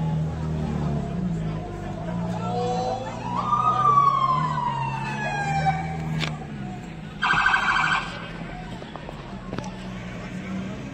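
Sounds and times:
police siren wail: 2.6 - 6.2, 7.2 - 8.4.

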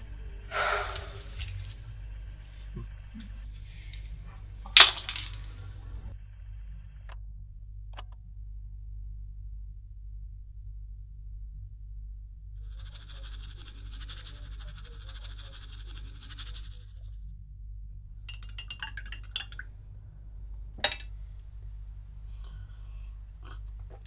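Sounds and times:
faint low hum: 0.0 - 24.0
spoon clinking against mug: 18.3 - 19.7.

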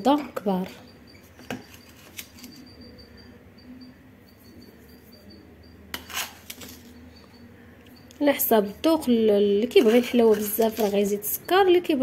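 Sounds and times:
faint high whine: 0.0 - 9.2
sugar rustling into saucepan: 9.3 - 11.4.

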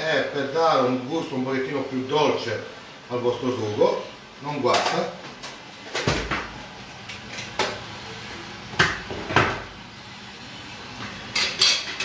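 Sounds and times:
kitchen utensils knocking and clinking: 11.4 - 12.0.

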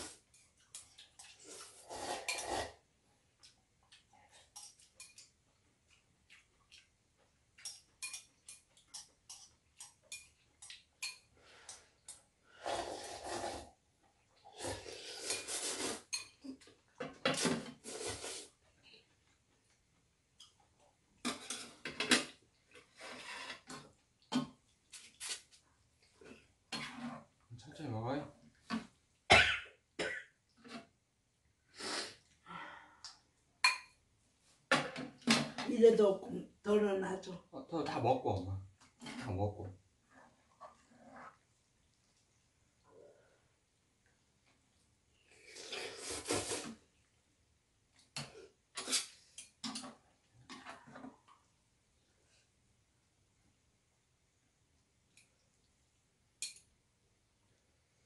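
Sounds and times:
noisy slurping of noodles: 1.2 - 2.9, 12.6 - 13.8, 14.4 - 16.1, 17.8 - 18.6, 45.3 - 47.0.

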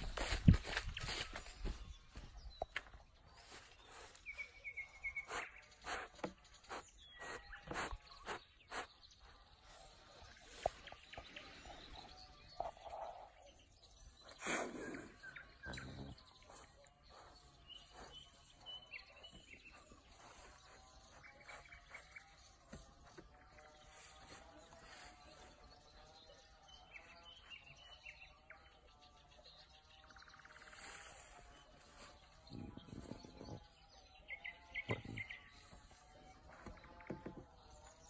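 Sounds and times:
faint bird chirps: 0.0 - 29.0.

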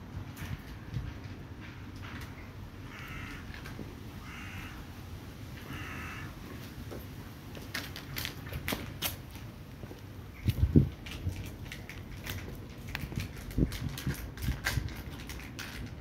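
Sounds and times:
crow cawing: 2.8 - 4.9, 5.6 - 6.4.

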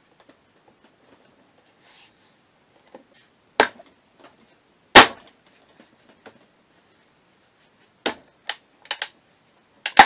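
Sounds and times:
rustle of handling: 0.8 - 3.4.

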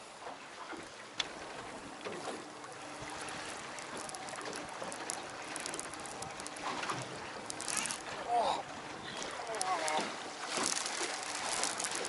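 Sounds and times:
water washing against a hull: 0.0 - 12.0
faint light ticks: 2.0 - 8.1, 9.1 - 12.0.

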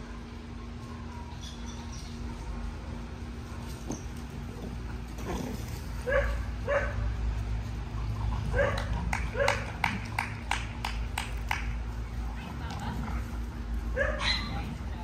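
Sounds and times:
dog barking: 6.0 - 7.0, 8.5 - 9.6, 14.0 - 14.6.

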